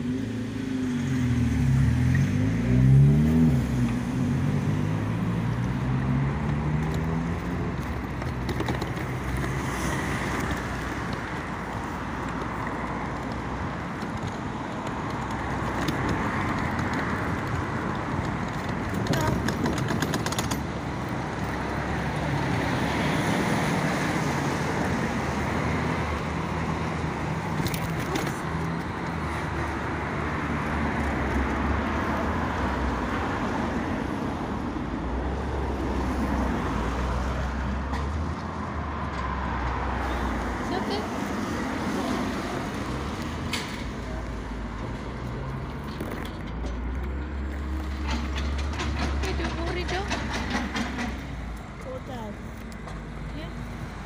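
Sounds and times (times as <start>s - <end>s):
passing traffic and tyre noise: 0.0s - 54.0s
car engine pulling away: 0.8s - 11.0s.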